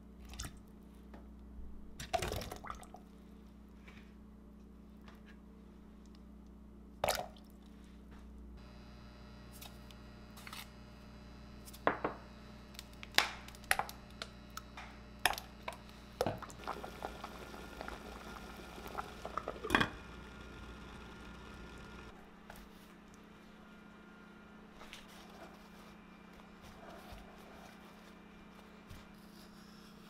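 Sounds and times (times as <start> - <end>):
steady low hum: 7.6 - 30.0.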